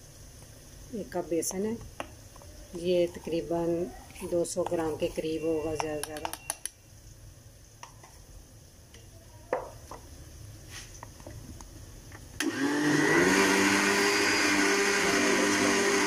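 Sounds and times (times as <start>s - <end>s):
blender motor whine: 12.4s - 16.0s.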